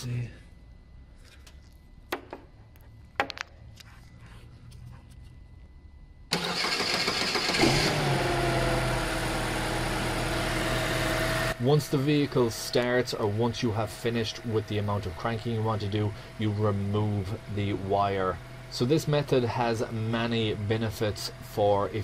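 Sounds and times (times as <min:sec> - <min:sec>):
starter motor cranking engine: 0:06.3 - 0:11.6.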